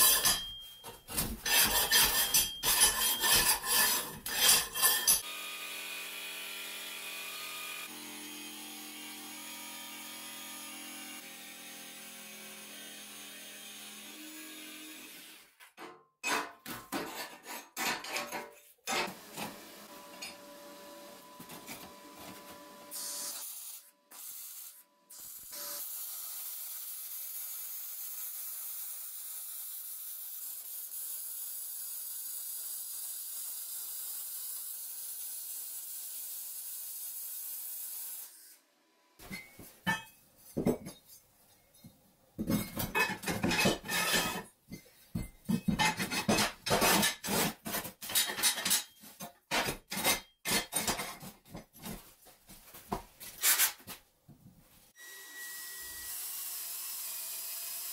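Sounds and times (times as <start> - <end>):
steel parts clattering: 0.0 - 5.2, 42.4 - 47.3, 47.9 - 51.2
jigsaw cutting sheet steel: 1.3 - 15.6, 22.5 - 38.6, 45.8 - 51.0, 55.0 - 57.9.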